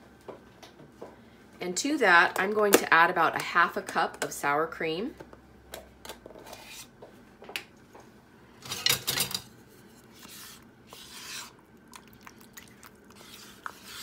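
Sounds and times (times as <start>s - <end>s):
utensil scraping plastic tub: 10.1s - 11.6s, 13.1s - 14.0s.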